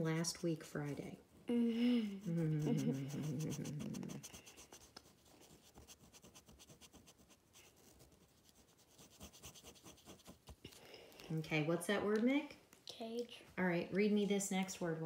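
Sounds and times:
marker scribbling on paper: 2.3 - 10.7.

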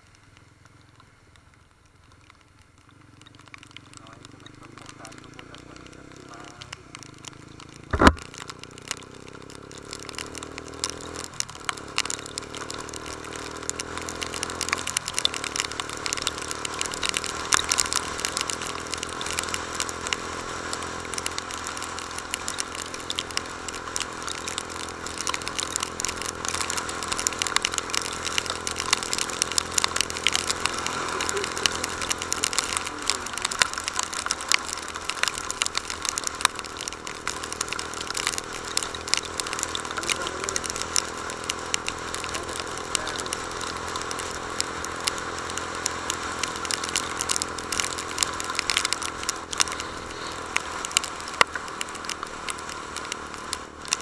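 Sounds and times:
dense crackle of clicks: 0.0 - 54.0
motorcycle engine shifting gears: 1.9 - 54.0
sharp knock: 7.9 - 8.2.

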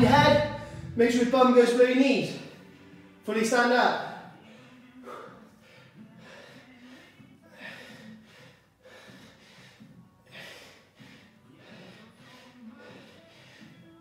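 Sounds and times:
man breathing hard: 4.4 - 14.0.

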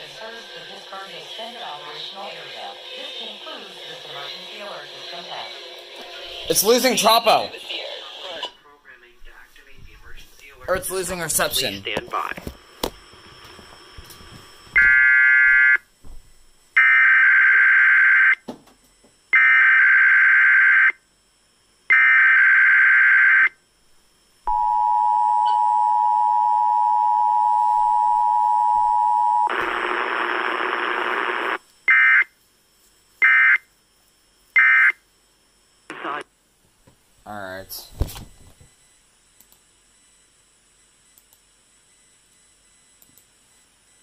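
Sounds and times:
two-tone attention signal: 24.5 - 29.5.

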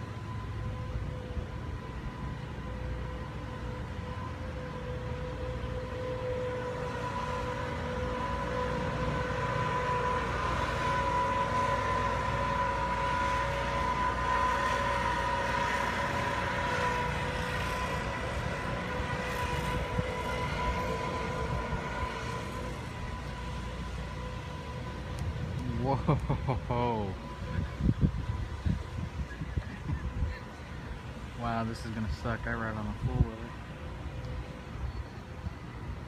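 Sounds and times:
distant warning siren: 0.0 - 36.0
wind noise: 17.8 - 22.6, 27.2 - 30.9.

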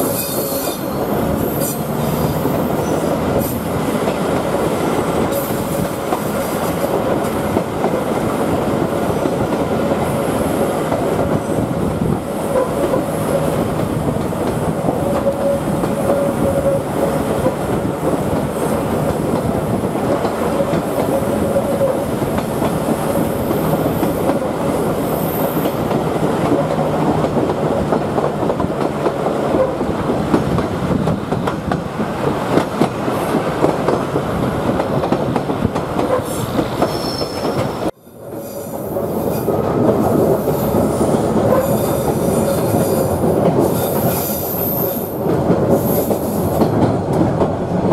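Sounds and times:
wheels squealing on rails: 0.0 - 4.2, 14.9 - 17.6, 20.4 - 26.0, 36.0 - 46.8
train running rumble: 0.0 - 47.9.

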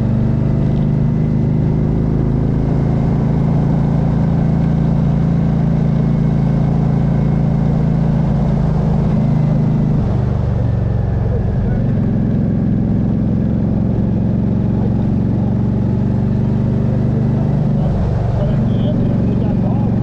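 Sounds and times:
motorcycle engine cruising: 0.0 - 20.0.

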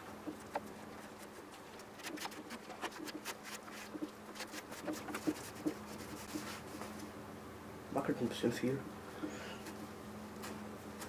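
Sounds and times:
hand scrubbing moped bodywork: 0.0 - 7.0
faint steady hum: 0.0 - 11.0.

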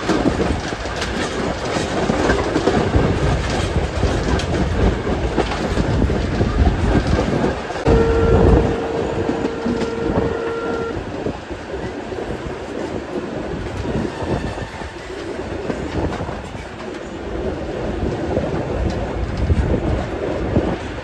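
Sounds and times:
train wheels clicking over rails: 0.0 - 21.0
steam train whistle: 7.8 - 11.1.

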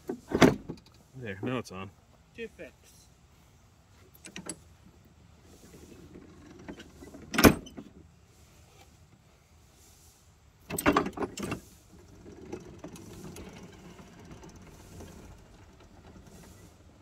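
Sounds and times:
traction motor hum: 11.3 - 17.0
train rolling on rails: 11.3 - 17.0.

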